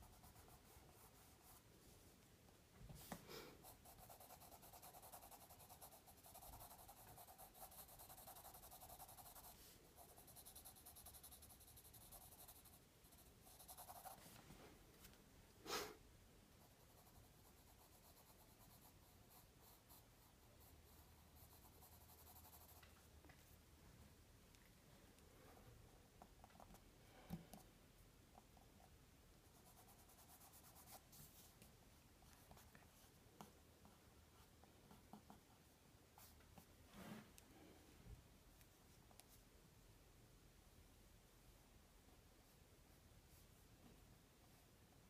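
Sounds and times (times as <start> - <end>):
pencil scratching on paper: 0.0 - 1.7, 3.0 - 14.4, 16.6 - 22.8, 29.4 - 31.5.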